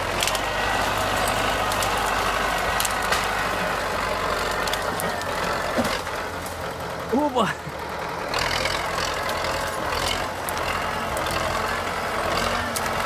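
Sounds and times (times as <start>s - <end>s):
tractor diesel engine running: 0.0s - 13.0s
sharp cracks of branches: 0.1s - 0.4s, 1.2s - 3.5s, 4.4s - 6.6s.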